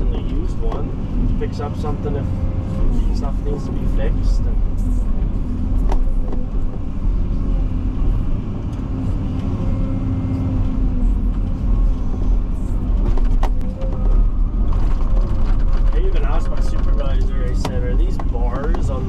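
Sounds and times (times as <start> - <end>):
vehicle engine rumbling: 0.0 - 19.0.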